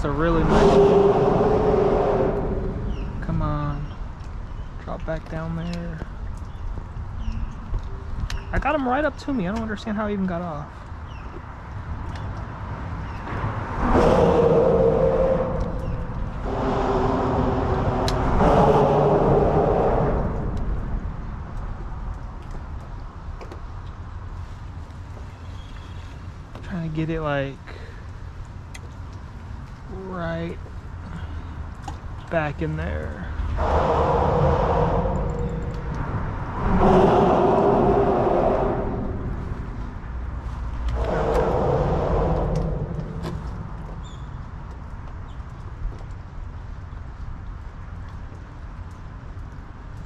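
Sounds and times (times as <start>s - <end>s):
vehicle passing overhead: 0.0s - 4.1s, 12.6s - 21.8s, 33.3s - 44.4s
traffic droning over bridge: 0.0s - 50.0s.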